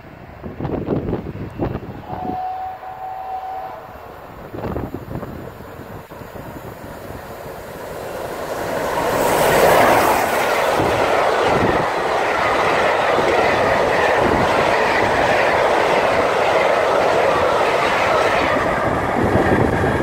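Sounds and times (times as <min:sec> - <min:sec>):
steam locomotive passing at speed: 0:00.0 - 0:20.0
train wheels clacking on rails: 0:06.1 - 0:20.0.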